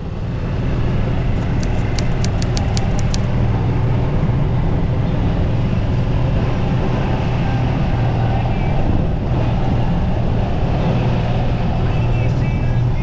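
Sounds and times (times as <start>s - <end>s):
faint high clicks: 1.4s - 3.3s.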